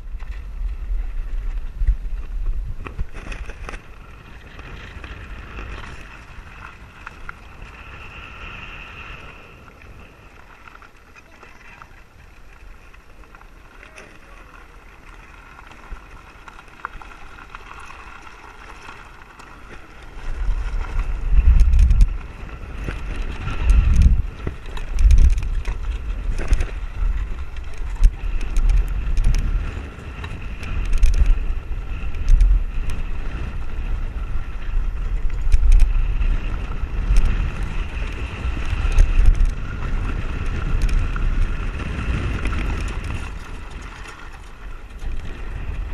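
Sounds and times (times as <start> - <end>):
cart rolling over sand: 0.0 - 45.9
wind buffeting microphone: 0.0 - 45.9
sharp clicks and rattles: 10.8 - 33.0, 34.9 - 36.1, 37.0 - 45.9.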